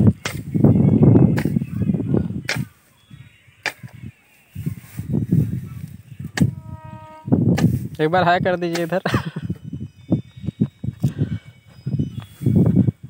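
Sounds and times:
hoe striking soil: 0.2s - 0.5s, 1.3s - 1.7s, 2.5s - 2.9s, 3.6s - 4.0s, 6.3s - 6.6s, 7.5s - 8.0s, 8.6s - 9.2s
blade scraping through grass: 3.6s - 9.2s.

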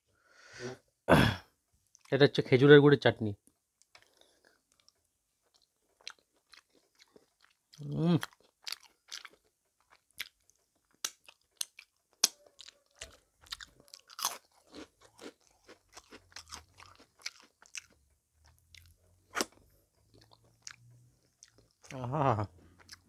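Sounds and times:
chewing and lip smacks: 3.8s - 22.0s, 22.7s - 23.0s.

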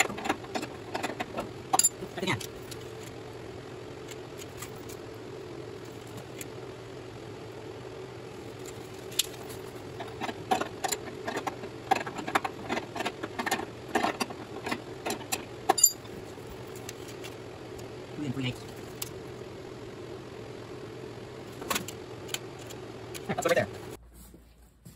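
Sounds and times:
tools and metal parts clinking: 0.0s - 3.1s, 8.6s - 17.4s
low background hum: 0.0s - 24.9s.

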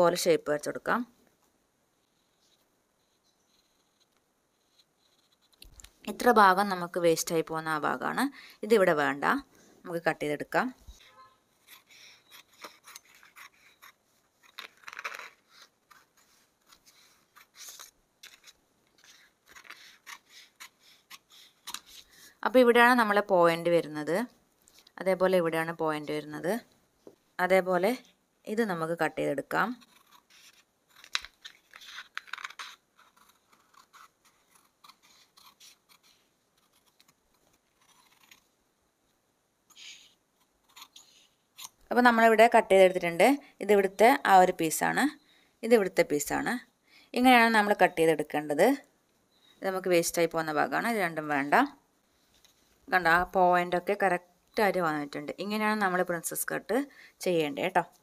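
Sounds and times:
scissors snipping fabric: 37.8s - 38.4s, 40.6s - 41.8s.

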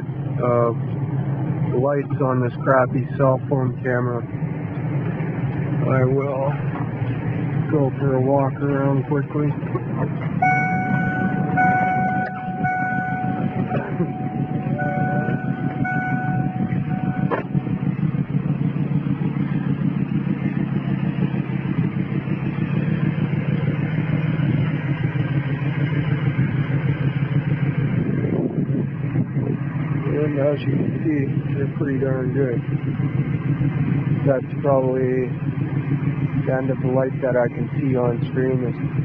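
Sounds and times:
car engine rumble: 0.0s - 39.0s
electronic warning tone: 10.4s - 17.8s
car door shutting: 14.8s - 17.6s.

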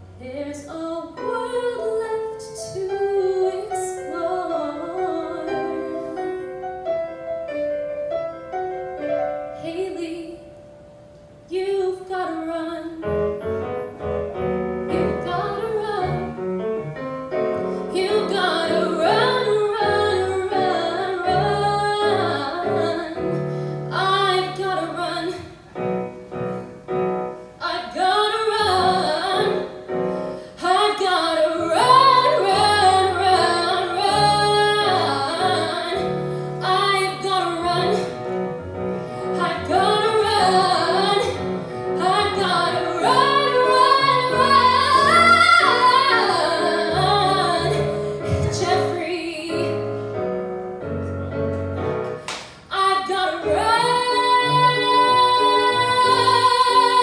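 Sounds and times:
piano accompaniment: 0.0s - 57.0s
woman singing: 0.2s - 6.6s, 9.6s - 10.6s, 11.5s - 13.2s, 14.9s - 16.4s, 17.8s - 25.6s, 27.6s - 29.8s, 30.6s - 38.2s, 39.2s - 49.9s, 52.7s - 57.0s.

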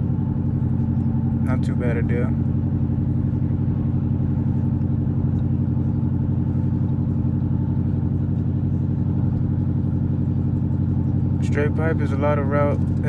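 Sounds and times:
low exhaust hum: 0.0s - 13.0s
road noise: 0.0s - 13.0s.

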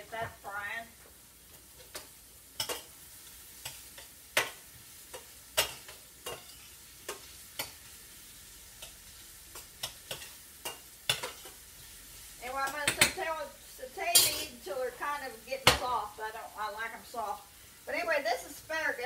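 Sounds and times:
faint sizzle: 0.0s - 19.0s
spoon scraping a skillet: 1.1s - 15.9s.

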